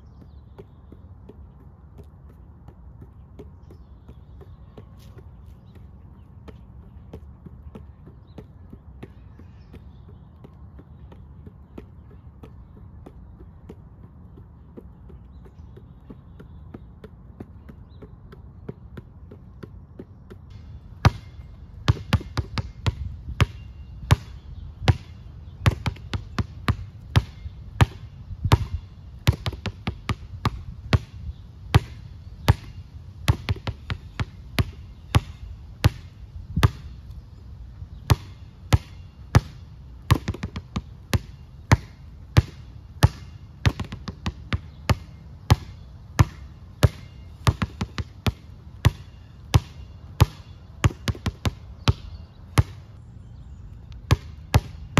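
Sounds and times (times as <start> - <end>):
basketball bouncing on asphalt: 0.0 - 37.2, 37.9 - 53.0, 53.8 - 54.9.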